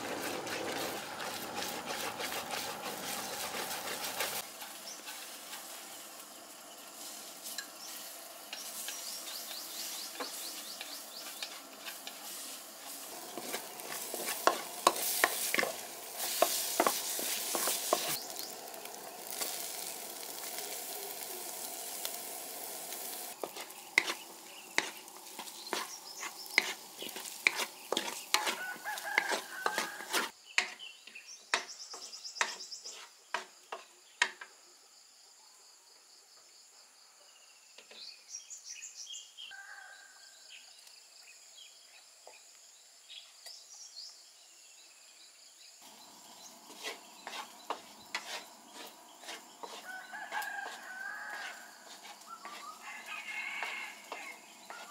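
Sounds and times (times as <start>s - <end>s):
spatula scraping and knocking pan: 0.0s - 6.1s, 7.0s - 30.8s, 31.5s - 34.4s, 46.4s - 52.8s, 53.5s - 54.9s
food sizzling in a wok: 0.0s - 30.8s, 38.3s - 54.9s
birds chirping: 7.6s - 29.7s, 45.8s - 51.5s
rooster crowing: 28.4s - 30.3s, 39.5s - 40.5s, 49.7s - 54.9s.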